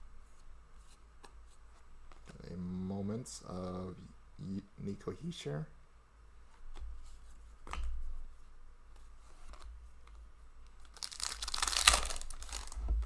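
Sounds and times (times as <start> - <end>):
paper crinkling and tearing: 10.8 - 13.0.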